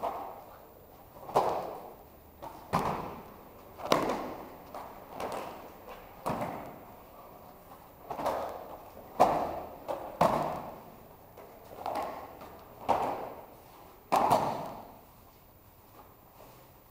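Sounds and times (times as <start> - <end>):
bodies thudding on mats: 1.2 - 6.8, 11.7 - 13.4.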